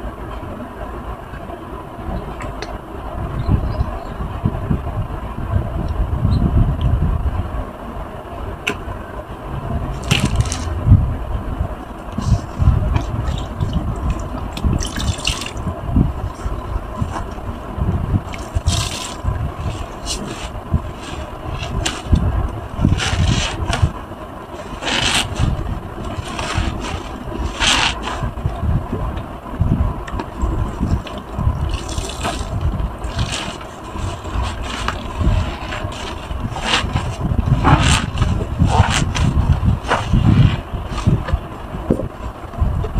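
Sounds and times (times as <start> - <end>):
crackling bursts: 9.8 - 15.6
wet sponge squishing: 18.3 - 22.2, 30.6 - 41.2.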